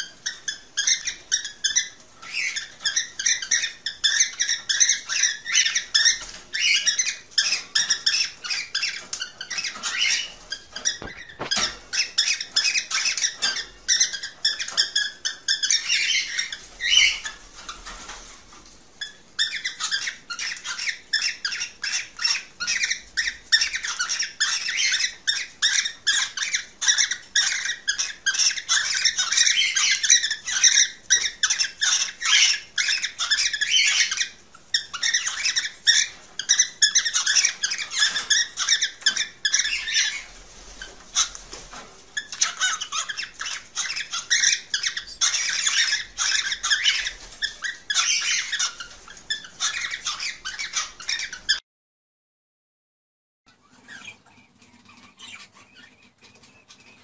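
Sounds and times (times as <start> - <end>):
cockatiels chirping: 0.0 - 51.6, 53.5 - 57.0.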